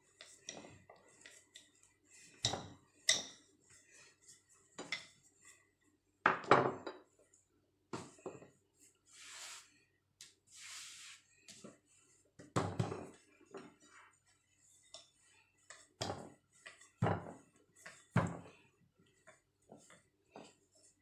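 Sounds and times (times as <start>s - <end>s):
dough and flour swishing: 8.6s - 9.8s, 10.4s - 12.4s.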